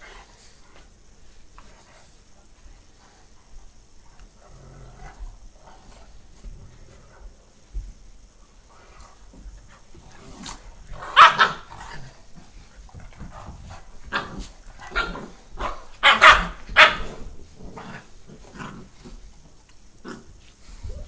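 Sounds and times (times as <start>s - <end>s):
dogs barking: 11.0s - 11.7s, 14.1s - 17.2s.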